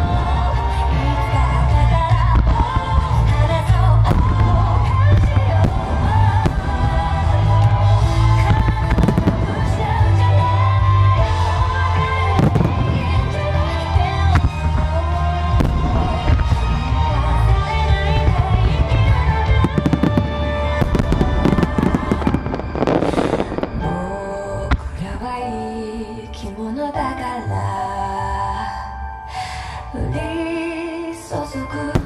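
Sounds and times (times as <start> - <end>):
fireworks bursting with bangs: 0.0 - 25.2
loud pop song: 0.0 - 32.0.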